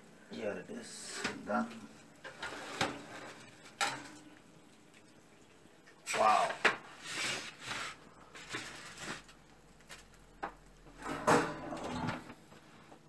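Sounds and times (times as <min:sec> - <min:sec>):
foil rustling and scraping: 0:02.2 - 0:03.8, 0:06.5 - 0:10.2.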